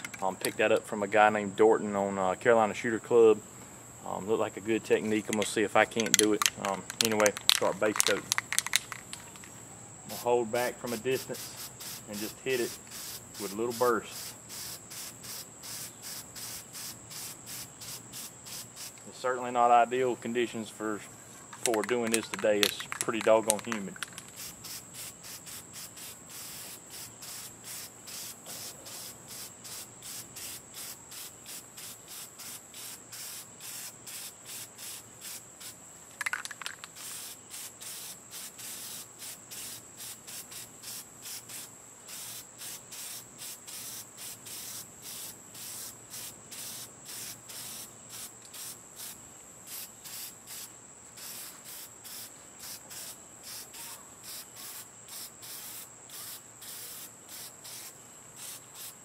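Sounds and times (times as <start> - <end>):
constant high whine: 0.0 - 37.8
insects chirping: 0.0 - 59.0
aerosol spray can hissing: 10.1 - 19.1, 21.8 - 35.8, 36.4 - 59.0.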